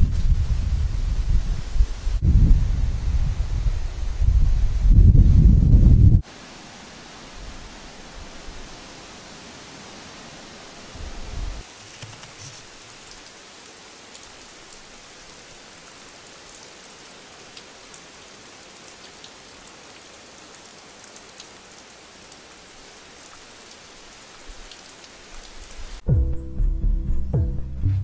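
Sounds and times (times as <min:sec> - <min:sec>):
steady rain falling: 0:00.0 - 0:26.1
music: 0:26.0 - 0:28.0.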